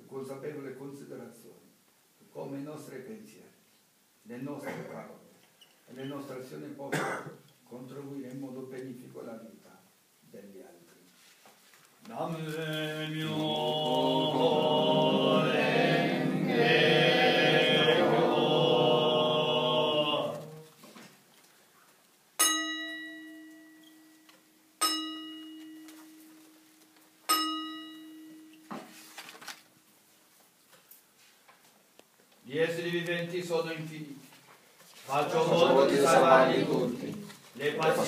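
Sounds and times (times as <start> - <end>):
person chanting: 12.2 - 20.7
bowl bell ringing: 22.4 - 24.2, 24.8 - 25.9, 27.3 - 28.6.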